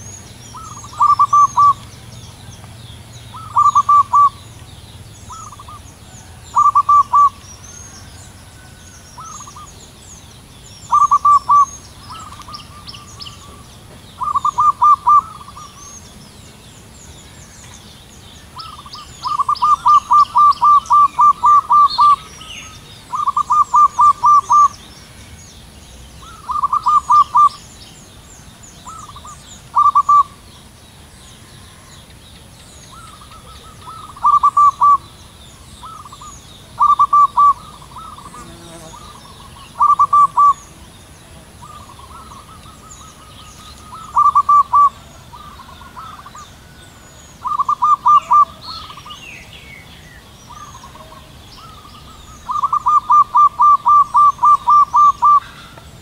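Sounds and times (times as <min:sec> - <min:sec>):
faint high chirping: 0:00.0 - 0:30.7, 0:31.4 - 0:56.0
dove cooing: 0:00.6 - 0:01.8, 0:03.3 - 0:04.5, 0:05.3 - 0:07.4, 0:10.8 - 0:13.6, 0:14.2 - 0:15.8, 0:18.6 - 0:24.8, 0:26.2 - 0:27.6, 0:28.8 - 0:30.4, 0:32.9 - 0:35.2, 0:35.8 - 0:40.8, 0:41.6 - 0:46.8, 0:47.4 - 0:49.2, 0:50.5 - 0:55.8.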